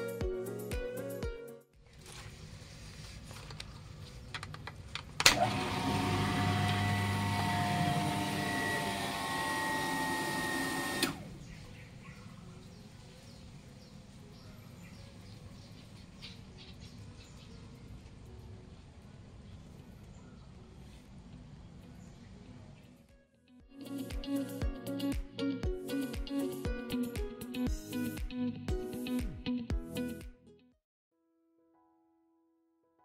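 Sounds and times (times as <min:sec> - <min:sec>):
water pump running: 0:05.3 - 0:11.2.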